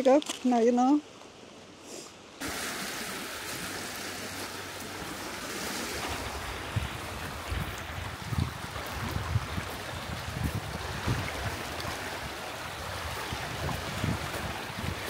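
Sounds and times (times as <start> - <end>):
wind: 0.0 - 15.0
lake water lapping: 2.4 - 15.0
wind buffeting microphone: 4.7 - 15.0.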